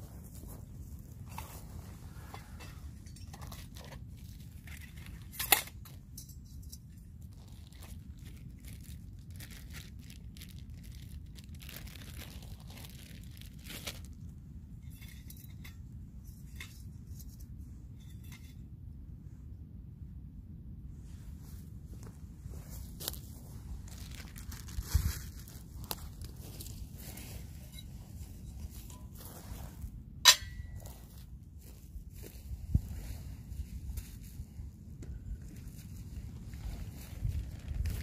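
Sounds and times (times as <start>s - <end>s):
steady low rumble: 0.0s - 38.0s
metal stove parts and pot clinking: 2.2s - 4.0s, 4.6s - 7.0s, 14.8s - 18.6s, 28.5s - 29.2s, 30.2s - 30.9s
plastic bag crinkling: 7.2s - 14.2s, 23.8s - 26.6s.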